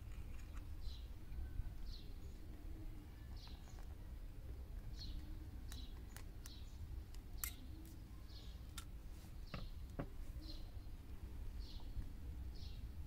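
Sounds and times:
bird chirping: 0:00.0 - 0:13.0
pliers clicking on wire: 0:05.7 - 0:08.0.

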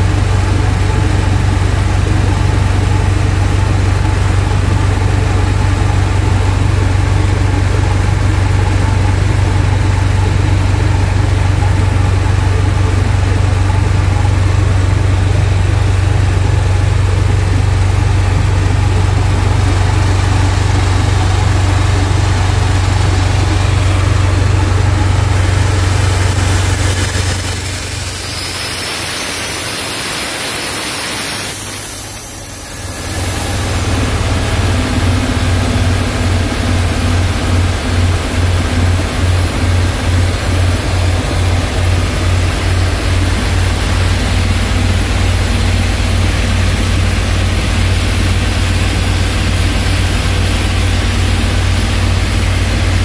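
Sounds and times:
diesel engine and pump drone: 0:00.0 - 0:53.0
high hiss: 0:20.8 - 0:34.2.

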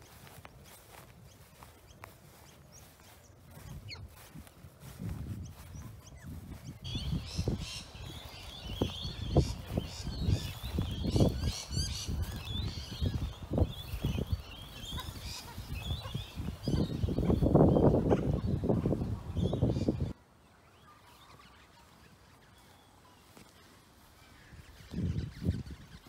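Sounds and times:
flock of birds chattering: 0:00.0 - 0:26.0.

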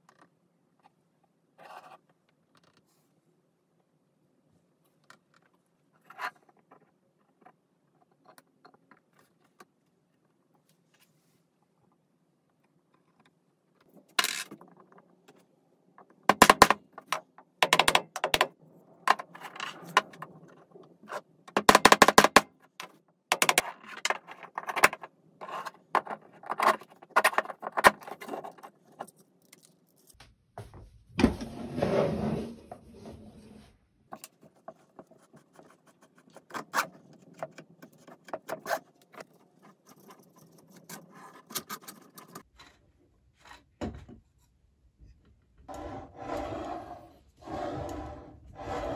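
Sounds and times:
plastic parts clicking and clattering: 0:12.6 - 0:30.2, 0:36.3 - 0:42.8
scraping rub: 0:45.7 - 0:48.9.

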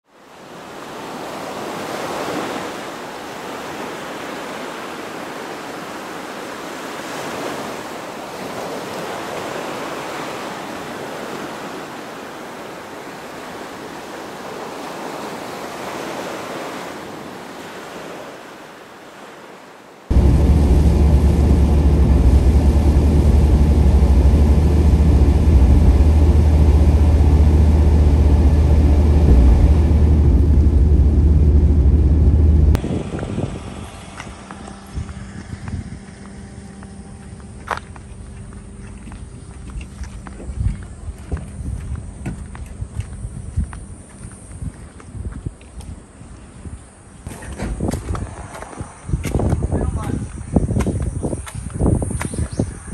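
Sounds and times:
waves washing on beach: 0:00.0 - 0:37.7
steady low rumble: 0:20.1 - 0:43.8.

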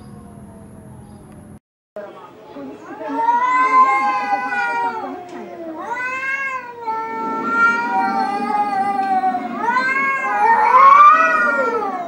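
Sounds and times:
cat yowling: 0:03.0 - 0:12.0.

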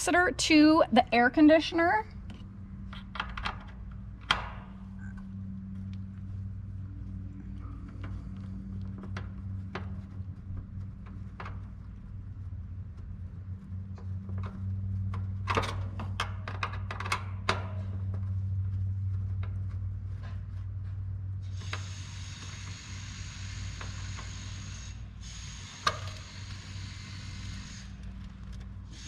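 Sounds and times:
low steady hum: 0:00.0 - 0:29.0
steady hiss: 0:21.4 - 0:28.2.

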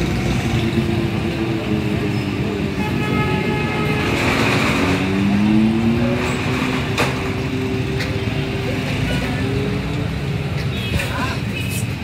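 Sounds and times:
street traffic: 0:00.0 - 0:12.0
engine revving: 0:03.9 - 0:08.0.

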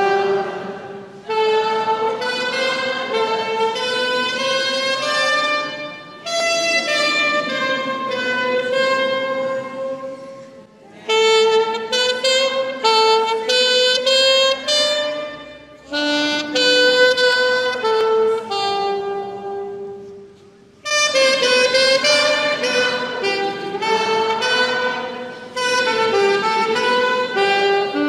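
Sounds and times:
alto saxophone melody: 0:00.0 - 0:28.0.

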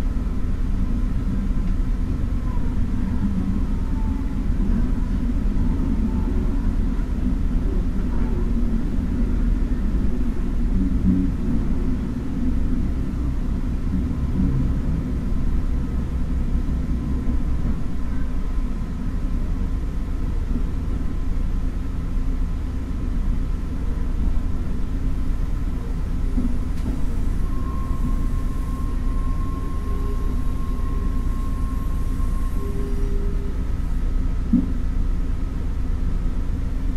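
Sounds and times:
railcar engine rumble: 0:00.0 - 0:36.9
thin steady whine: 0:23.5 - 0:36.4
train wheels on rails: 0:24.6 - 0:34.9.

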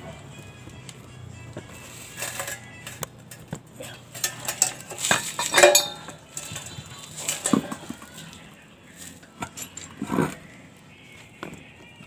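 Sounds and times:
metal wheel clinking and clattering: 0:02.1 - 0:08.3, 0:09.1 - 0:10.4
ringing metal clank: 0:04.1 - 0:06.7.

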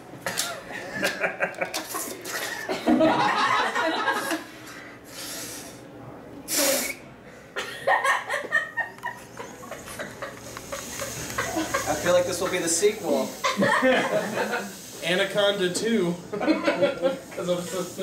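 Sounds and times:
people laughing: 0:00.3 - 0:04.6, 0:07.6 - 0:12.7, 0:13.4 - 0:14.8, 0:16.3 - 0:17.4
man blowing into balloon: 0:05.1 - 0:05.8, 0:06.5 - 0:07.0, 0:09.8 - 0:12.1.

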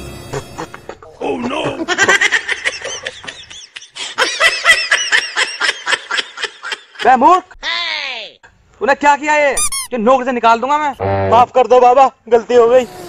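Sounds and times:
high-pitched cackling laughter: 0:00.3 - 0:07.0.

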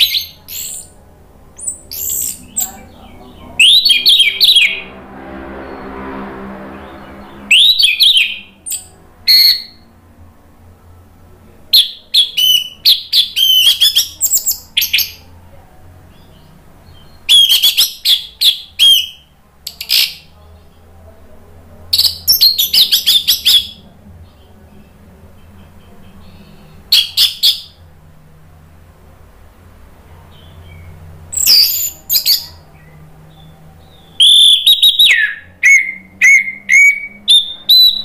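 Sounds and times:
thrush singing: 0:00.0 - 0:10.3.

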